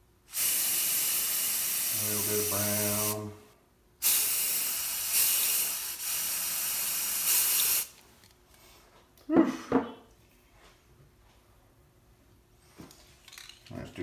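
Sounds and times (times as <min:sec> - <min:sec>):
aerosol spray can hissing: 0:00.3 - 0:03.2, 0:04.0 - 0:08.0.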